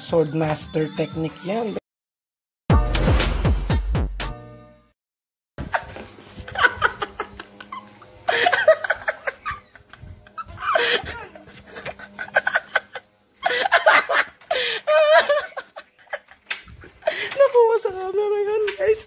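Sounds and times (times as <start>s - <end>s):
people laughing hard: 5.6s - 17.4s.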